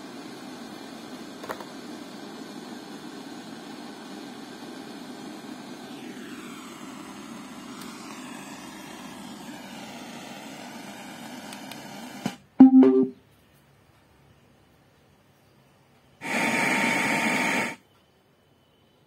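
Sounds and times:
soundbar playing music quietly: 12.2s - 13.2s.

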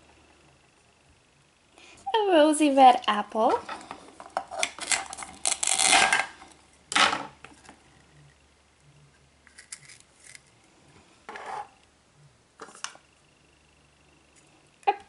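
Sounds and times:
velcro ripping: 4.6s - 6.2s.

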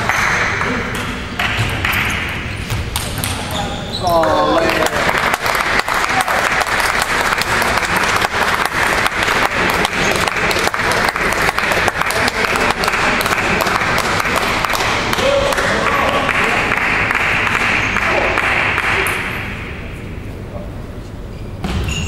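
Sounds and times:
spectators applauding: 4.2s - 19.3s.

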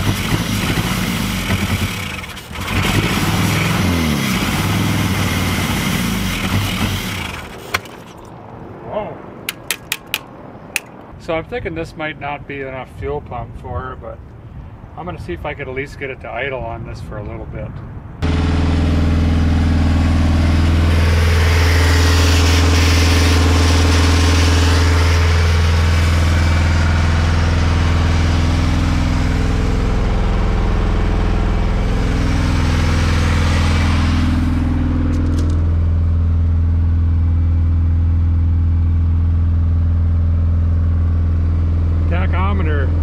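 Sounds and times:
car engine exhaust note: 18.2s - 43.0s.

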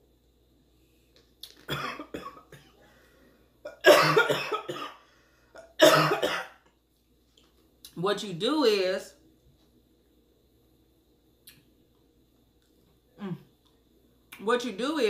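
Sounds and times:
woman coughing: 1.7s - 2.8s, 3.7s - 5.0s, 5.6s - 6.6s.

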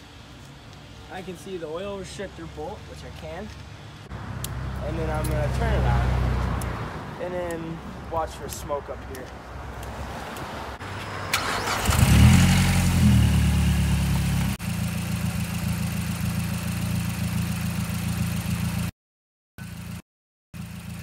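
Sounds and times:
car engine starting and idling: 10.8s - 18.8s.

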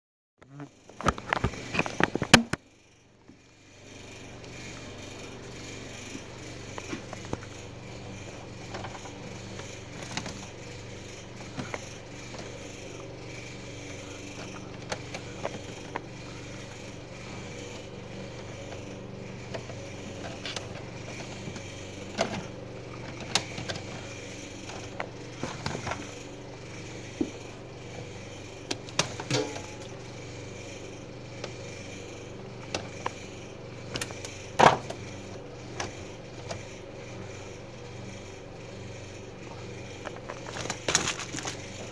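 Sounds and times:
steady background hum: 0.4s - 41.9s
hands handling wires and metal: 28.9s - 29.9s, 40.0s - 41.9s.

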